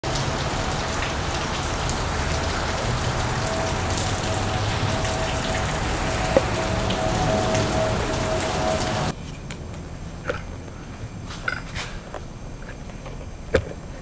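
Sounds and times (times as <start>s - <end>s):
steady rain: 0.0s - 9.2s.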